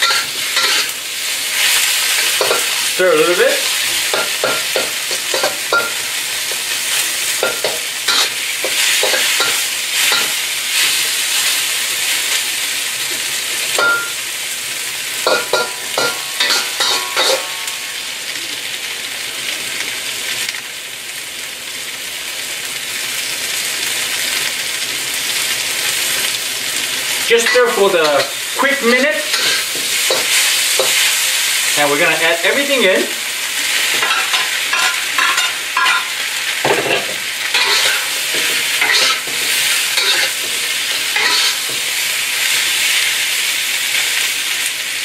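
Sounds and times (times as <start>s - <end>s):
metal spatula scraping wok: 0.0s - 1.0s, 1.6s - 11.0s, 15.3s - 17.9s, 27.3s - 31.2s, 33.9s - 42.0s
food sizzling in hot oil: 0.0s - 45.0s.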